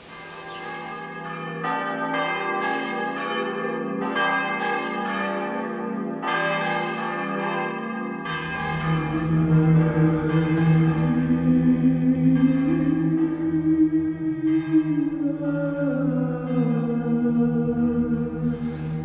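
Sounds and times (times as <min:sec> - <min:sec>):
church bells ringing: 0:00.0 - 0:19.0
low steady drone: 0:08.4 - 0:19.0.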